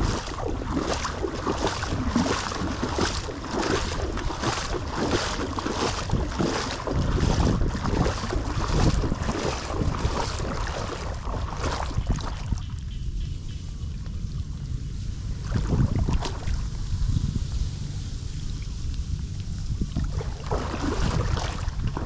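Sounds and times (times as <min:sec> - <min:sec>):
footsteps splashing in water: 0:00.0 - 0:12.8, 0:15.4 - 0:16.7, 0:19.8 - 0:22.0
wind rumble on microphone: 0:00.0 - 0:22.0.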